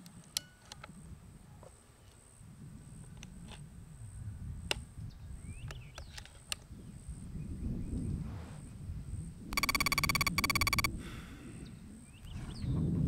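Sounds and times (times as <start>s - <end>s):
pulsing buzzing tone: 9.6s - 10.9s
sharp clicks: 9.6s - 10.9s
small chirps: 9.6s - 10.9s.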